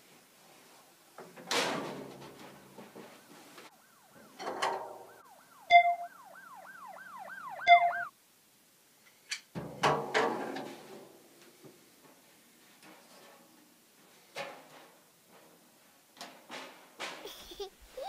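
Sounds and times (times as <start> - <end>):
warbling siren-like tone: 3.7 - 8.1
sharp beeps: 5.7 - 6.2, 7.5 - 8.1.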